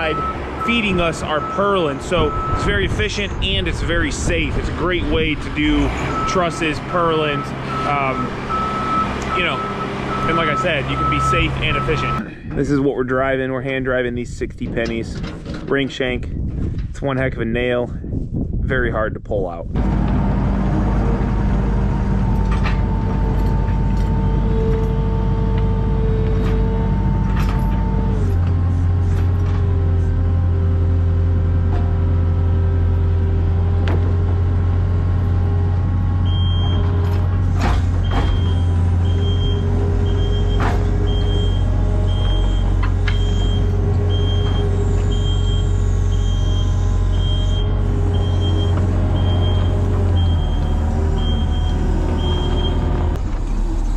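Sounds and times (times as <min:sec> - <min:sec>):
backup alarm beeping: 0:00.0 - 0:02.7, 0:07.3 - 0:12.2, 0:36.2 - 0:36.9, 0:38.0 - 0:52.9
skid loader engine running: 0:00.0 - 0:12.8, 0:19.8 - 0:53.9.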